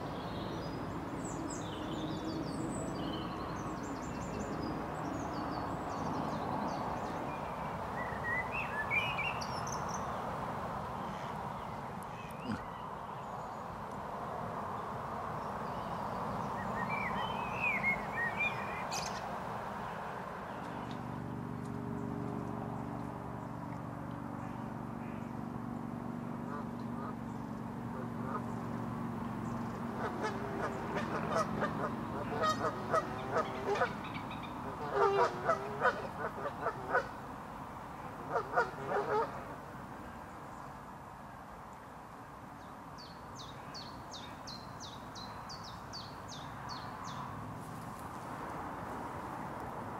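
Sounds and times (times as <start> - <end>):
songbird chirps: 0.0 - 10.3, 10.9 - 25.5, 41.7 - 48.5
geese honking: 30.0 - 37.1, 38.3 - 39.4.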